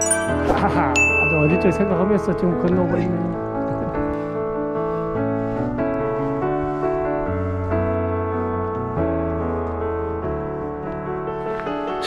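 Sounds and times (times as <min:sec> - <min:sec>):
piano melody: 0:00.0 - 0:12.0.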